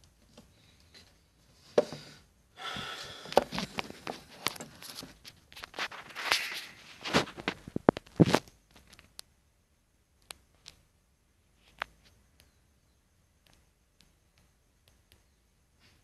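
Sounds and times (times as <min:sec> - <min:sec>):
small clicks: 0:10.2 - 0:10.9, 0:13.4 - 0:15.4.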